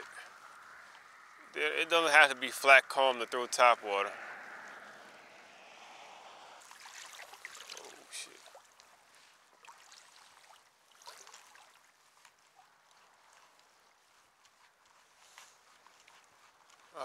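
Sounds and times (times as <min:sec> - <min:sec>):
small waves lapping: 0:00.0 - 0:03.2, 0:03.8 - 0:17.0
water splashes and drips: 0:06.6 - 0:17.0.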